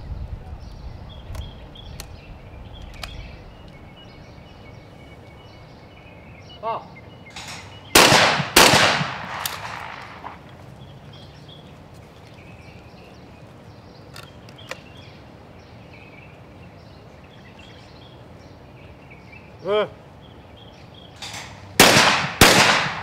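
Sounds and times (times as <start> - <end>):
faint clicks: 2.8 - 3.8, 14.1 - 14.9
shotgun shots with echo: 7.4 - 10.4, 21.2 - 23.0.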